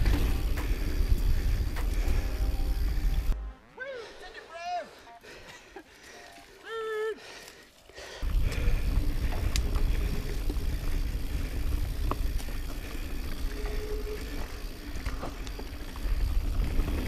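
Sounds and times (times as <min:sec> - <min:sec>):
bike clicks and rattles: 0:00.0 - 0:03.4, 0:08.2 - 0:17.0
tyres on dirt trail: 0:00.0 - 0:17.0.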